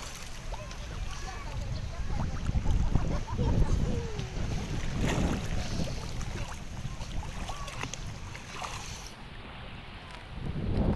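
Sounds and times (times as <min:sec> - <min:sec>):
seawater splashing: 0:00.0 - 0:10.5.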